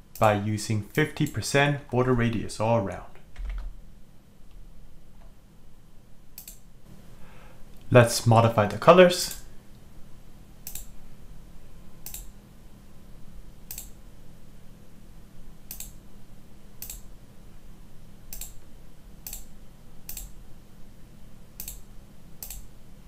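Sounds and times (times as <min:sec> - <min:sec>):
faint low hum: 0:00.0 - 0:23.0
computer mouse clicks: 0:06.4 - 0:06.6, 0:10.6 - 0:10.9, 0:12.0 - 0:12.3, 0:13.7 - 0:14.0, 0:15.7 - 0:16.0, 0:16.8 - 0:17.1, 0:18.3 - 0:19.5, 0:20.1 - 0:20.4, 0:21.6 - 0:22.7.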